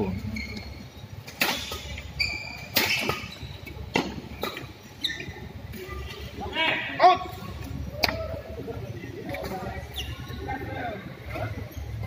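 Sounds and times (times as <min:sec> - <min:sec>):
court shoes squeaking: 0:00.0 - 0:06.4, 0:08.8 - 0:12.0.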